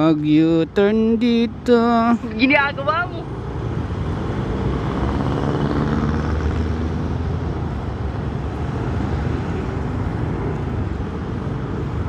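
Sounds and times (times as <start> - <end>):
road and wind noise: 0.0 - 12.0
motor scooter engine drone: 4.6 - 7.1.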